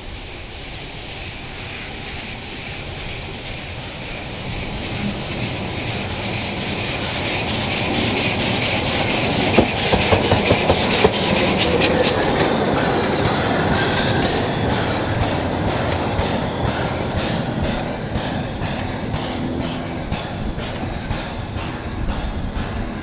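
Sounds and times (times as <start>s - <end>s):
steam locomotive rumbling past: 0.0s - 23.0s
wheels clicking over rail joints: 4.4s - 23.0s.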